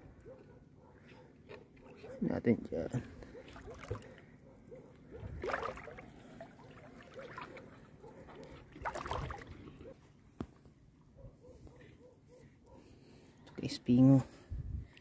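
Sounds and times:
footsteps wading in water: 3.2 - 4.2, 5.0 - 10.0
water sloshing splashes: 3.3 - 4.2, 5.1 - 10.0.

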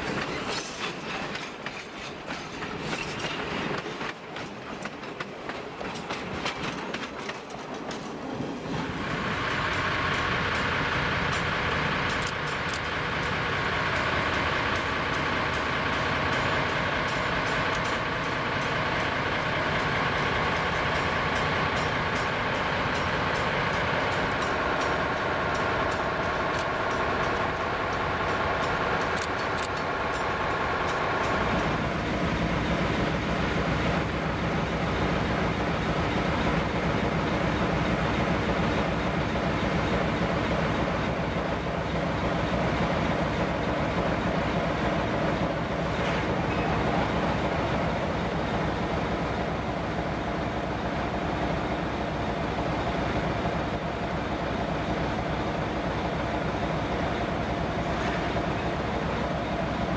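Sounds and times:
diesel locomotive engine idling: 8.8 - 59.9.

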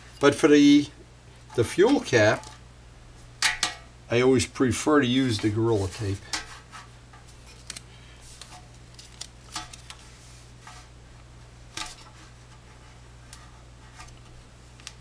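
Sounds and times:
steady low hum: 0.0 - 15.0
tape crackling and tapping: 6.2 - 12.6, 13.2 - 15.0.

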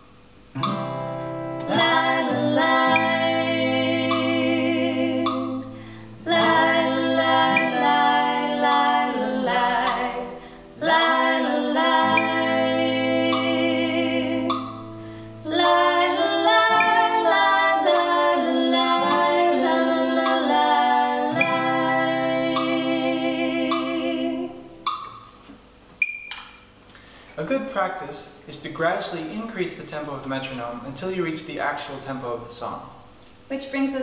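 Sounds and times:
man and woman singing a cappella: 1.6 - 24.8
singers breathing: 5.6 - 6.2, 10.3 - 10.8, 14.9 - 15.4, 26.9 - 27.4.

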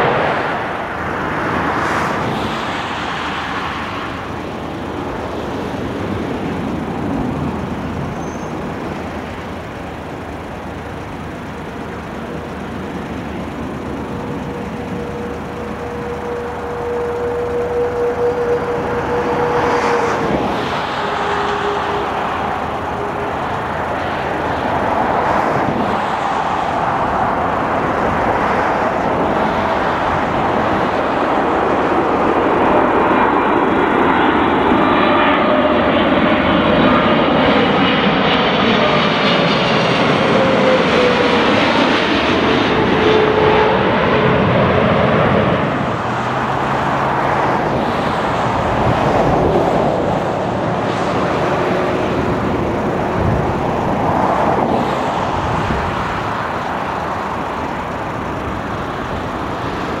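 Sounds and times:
jet airliner passing overhead: 0.0 - 60.0
jet engine whine falling in pitch: 0.0 - 60.0.

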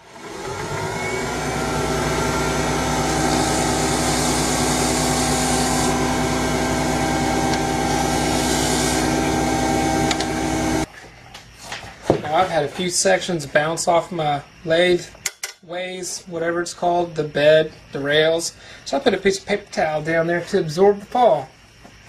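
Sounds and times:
cutting tool hissing: 0.0 - 10.9
small lathe running: 0.0 - 10.9.

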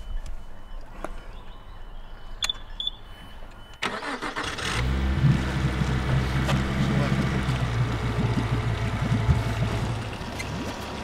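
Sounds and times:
short beeps: 0.0 - 4.0
starter motor cranking: 3.8 - 10.5
outboard engine idling: 3.8 - 11.0.

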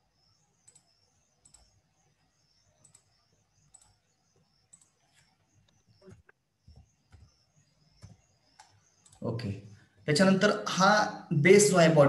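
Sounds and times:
faint computer clicks: 0.6 - 1.8, 2.8 - 10.1.

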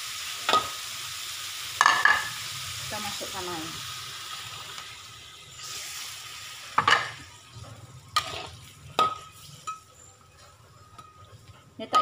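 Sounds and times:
water sizzling in hot wok: 0.0 - 11.9
metal spatula scraping wok: 6.8 - 11.5.

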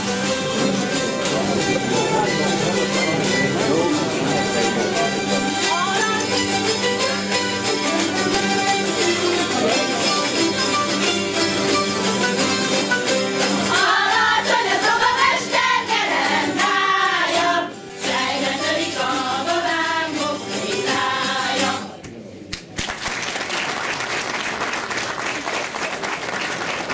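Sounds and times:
zither ensemble plucking: 0.0 - 22.0
choir singing: 13.5 - 22.0
audience applause: 22.5 - 26.9.

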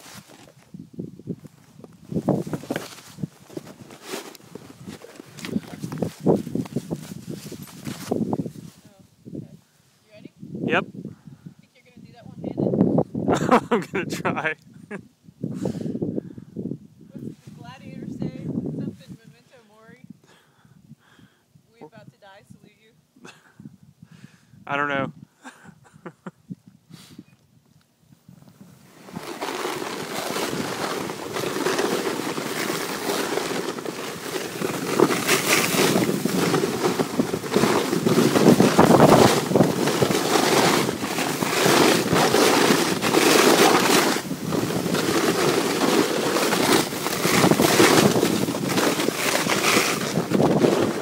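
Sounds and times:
sled scraping on snow: 0.0 - 0.6, 1.7 - 9.0, 28.8 - 51.0
wind buffeting microphone: 0.6 - 3.9, 4.5 - 22.8, 26.4 - 51.0.

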